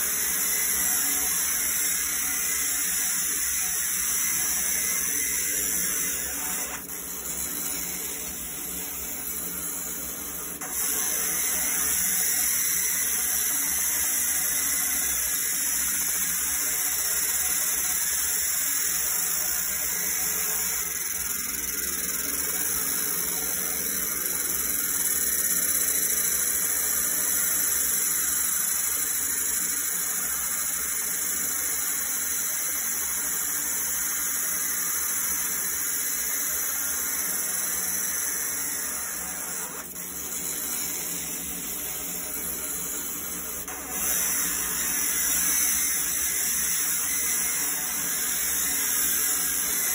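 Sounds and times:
laser engraver hissing on metal: 0:00.0 - 0:49.9.

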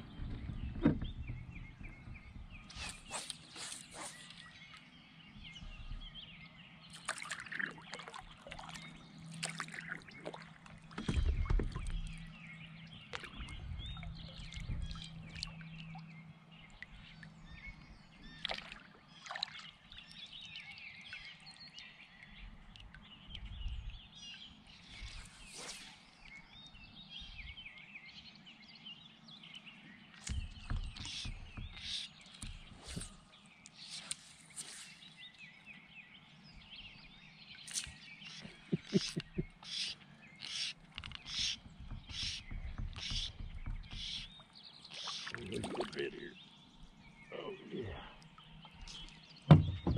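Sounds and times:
kayak and paddle knocking: 0:00.0 - 0:03.2, 0:30.3 - 0:33.2, 0:38.4 - 0:39.6, 0:40.8 - 0:44.6, 0:48.7 - 0:49.9
birds singing and chirping: 0:00.0 - 0:49.9.

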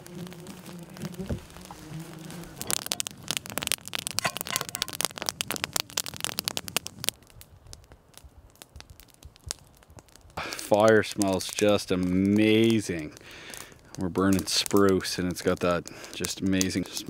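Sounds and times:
campfire crackling and popping: 0:00.0 - 0:17.0.

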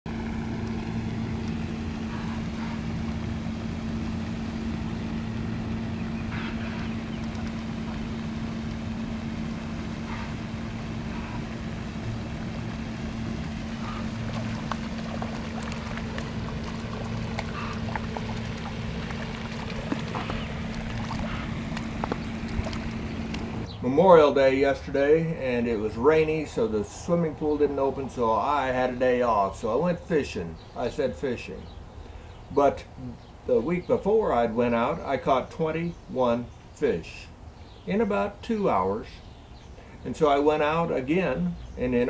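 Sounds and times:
motor humming: 0:00.1 - 0:23.8
fish splashing: 0:13.4 - 0:23.7.

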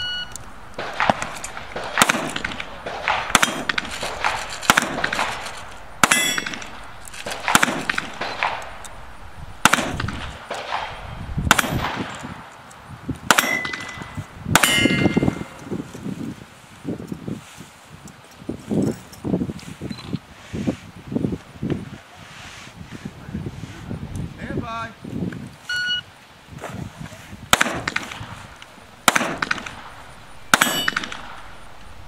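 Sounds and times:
rifle shots: 0:00.6 - 0:12.4, 0:13.3 - 0:15.7, 0:27.5 - 0:31.9
steel plates ringing: 0:05.4 - 0:07.0, 0:13.4 - 0:15.6, 0:30.5 - 0:31.3.

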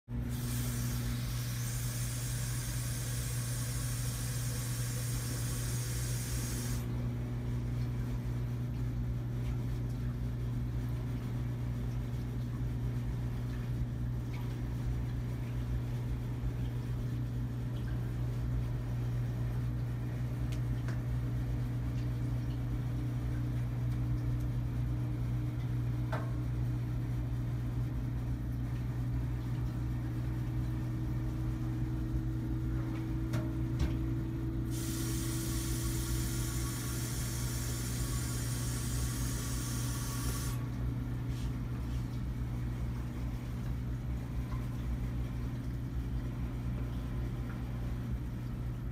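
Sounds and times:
steady low hum: 0:00.1 - 0:48.9
high hiss: 0:00.4 - 0:06.9, 0:34.7 - 0:40.6.

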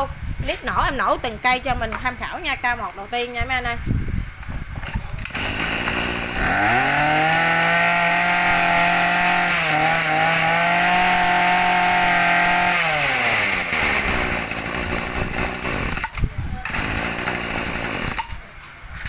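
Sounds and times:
brush cutter engine running: 0:04.8 - 0:18.4.

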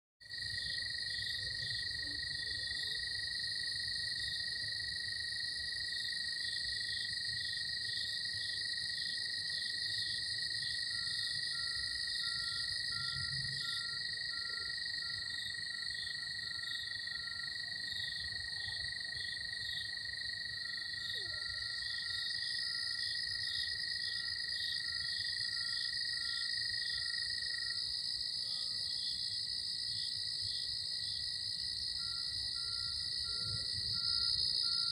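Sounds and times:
cicadas and crickets trilling: 0:00.3 - 0:34.9
faint electronic beeping: 0:10.9 - 0:15.3, 0:32.0 - 0:34.9.

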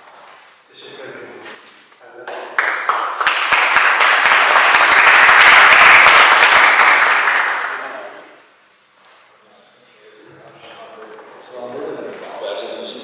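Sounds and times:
audience applauding: 0:02.2 - 0:08.2.

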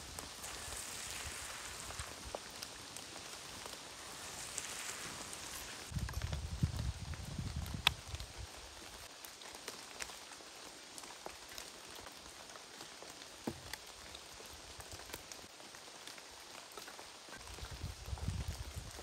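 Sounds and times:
steady background hiss: 0:00.0 - 0:06.2
spice grains pattering: 0:00.0 - 0:07.0.

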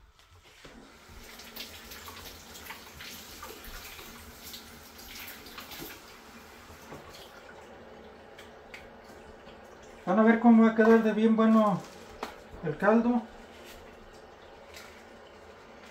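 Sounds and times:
faucet running into sink: 0:01.1 - 0:10.2.

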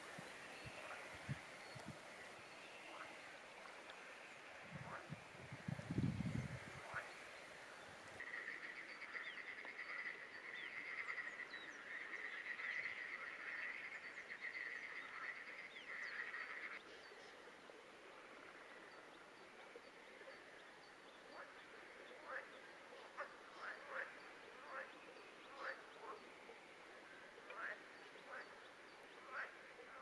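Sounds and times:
frogs trilling chorus: 0:00.0 - 0:07.6, 0:08.2 - 0:16.8.

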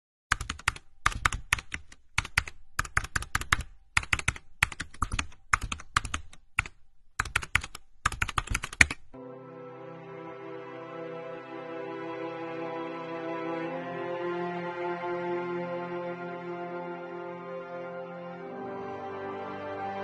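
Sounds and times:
keyboard key clicks: 0:00.3 - 0:09.1
soft background music with held chords: 0:09.2 - 0:20.0.

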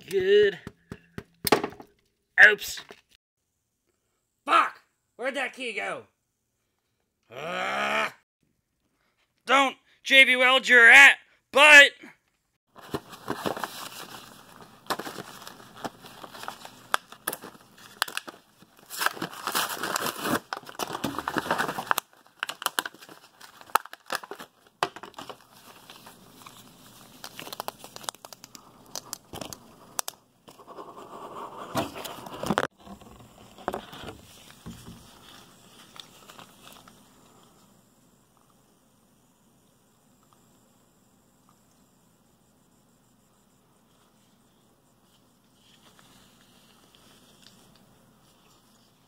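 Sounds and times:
blister pack crinkling and tearing: 0:13.2 - 0:30.2, 0:34.3 - 0:37.0.

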